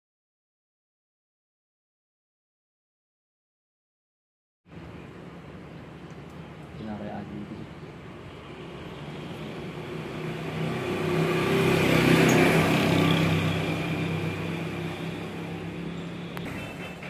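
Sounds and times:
vehicle driving past: 8.2s - 17.0s.

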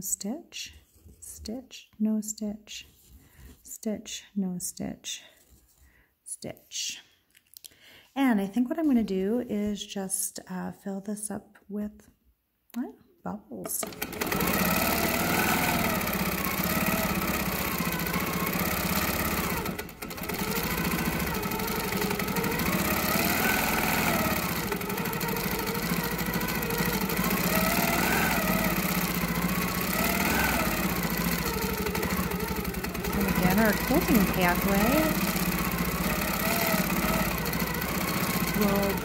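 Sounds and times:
quilting machine motor whine: 13.8s - 39.0s.

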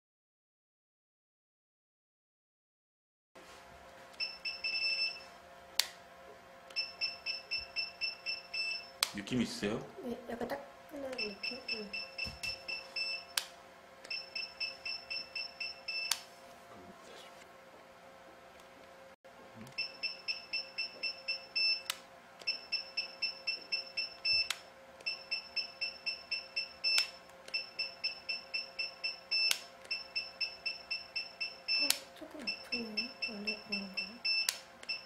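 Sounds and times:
faint steady hum: 3.4s - 35.0s
rapid high beeps: 4.2s - 5.2s, 6.8s - 9.0s, 11.2s - 13.4s, 14.1s - 16.1s, 19.8s - 21.9s, 22.5s - 35.0s.

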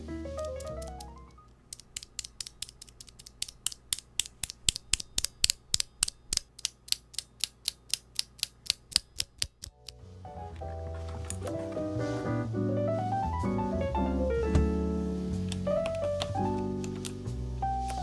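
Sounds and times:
keyboard switch clicking: 0.4s - 10.0s, 15.5s - 17.2s.

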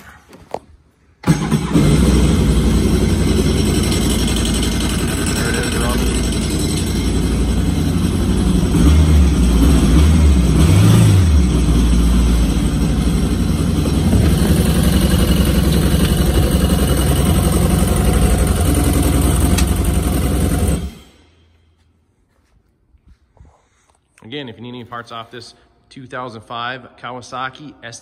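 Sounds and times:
watercraft engine revving and idling: 1.2s - 21.2s.

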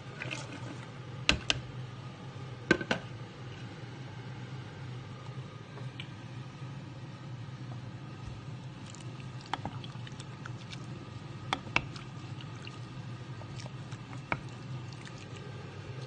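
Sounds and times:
spoon stirring wet stew: 8.2s - 16.0s.

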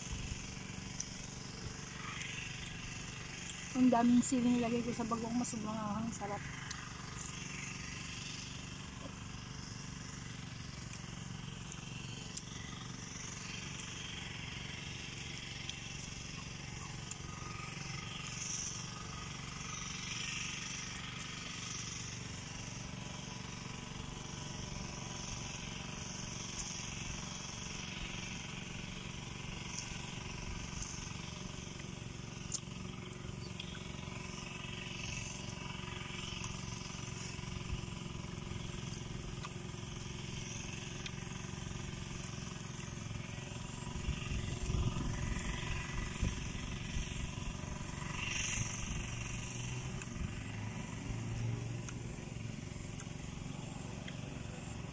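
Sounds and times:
crunchy chewing: 0.0s - 3.7s, 6.4s - 7.7s, 15.2s - 19.4s, 29.6s - 46.0s, 47.8s - 54.9s
low outdoor rumble: 0.0s - 54.9s.

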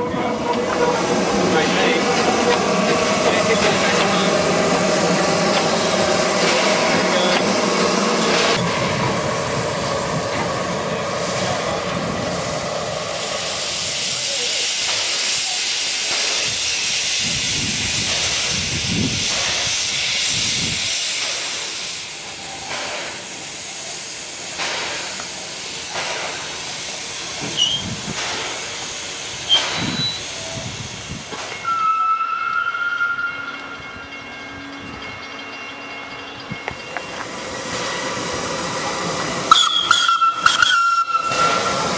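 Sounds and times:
steam hissing: 0.6s - 33.2s, 36.4s - 41.9s
steam exhaust puffs: 1.0s - 31.8s.

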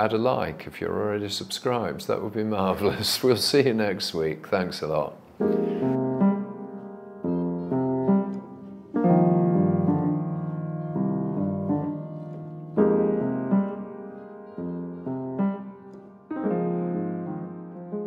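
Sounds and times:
slow piano chords: 5.3s - 18.0s.

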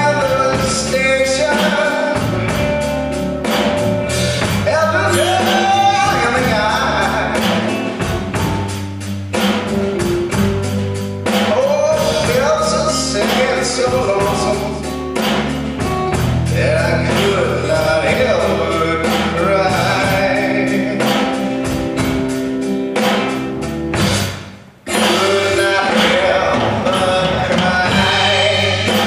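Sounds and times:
blues-rock band playing: 0.0s - 29.0s.

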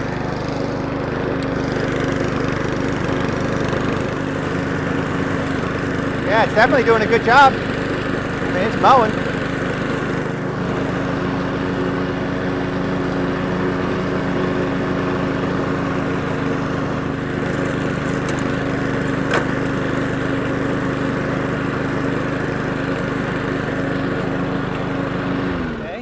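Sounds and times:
lawn mower engine cutting grass: 0.0s - 26.0s.

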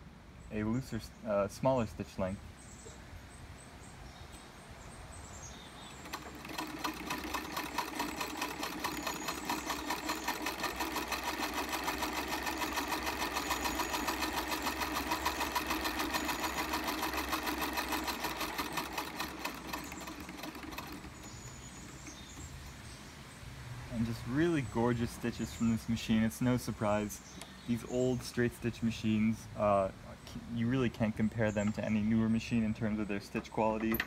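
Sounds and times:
treadle sewing machine clatter: 6.0s - 22.5s.

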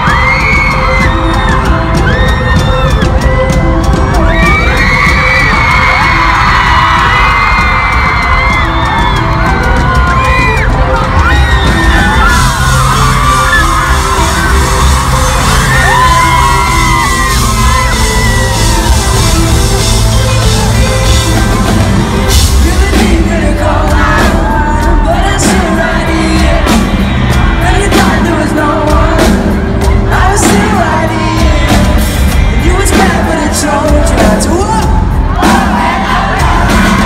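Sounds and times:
fans yelling and whooping: 0.0s - 37.0s
live rock band playing: 0.0s - 37.0s
lead vocal singing: 20.6s - 37.0s.

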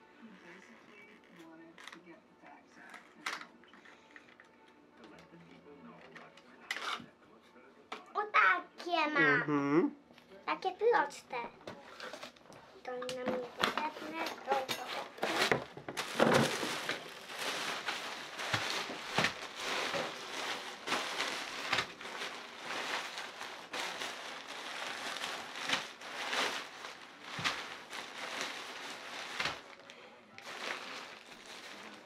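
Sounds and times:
nylon fabric rustling and crinkling: 13.3s - 32.0s.

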